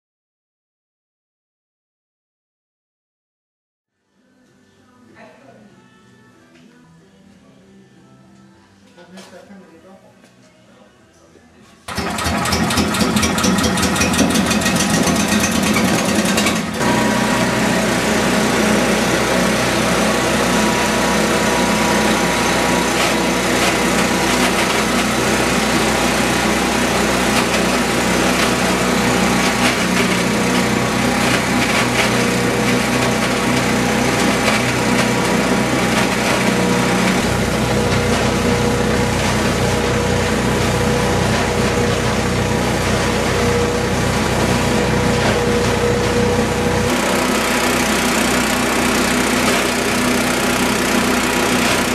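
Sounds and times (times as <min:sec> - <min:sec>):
petrol engine running: 0:11.9 - 0:51.9.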